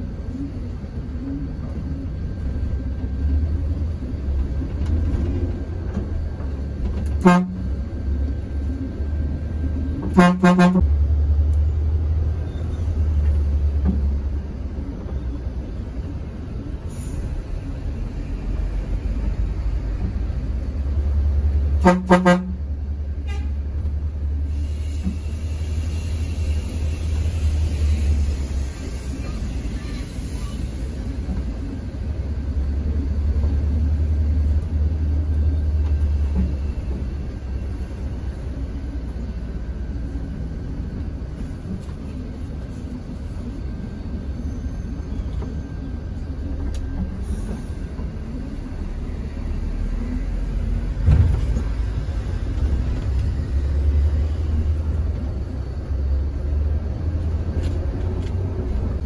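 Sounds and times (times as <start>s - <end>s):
coach engine rumble: 0.0s - 59.0s
road noise: 0.0s - 59.0s
vehicle horn tooting: 7.2s - 7.6s, 10.1s - 10.9s, 21.8s - 22.6s.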